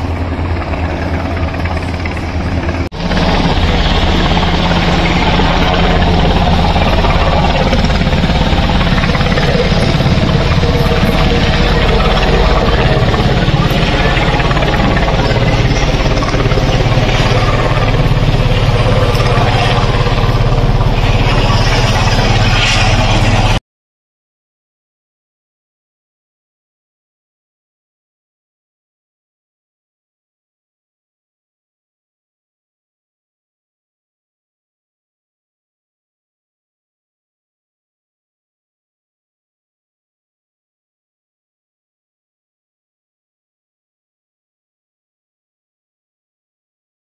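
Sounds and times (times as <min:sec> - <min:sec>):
helicopter rotor beat: 0:00.0 - 0:23.6
turbine engines whining: 0:00.0 - 0:23.6.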